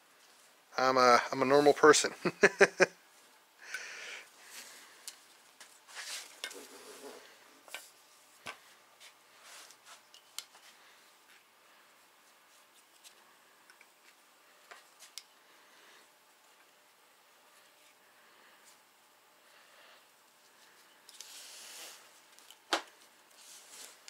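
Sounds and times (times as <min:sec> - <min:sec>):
rubbing scrape: 0:05.9 - 0:07.2.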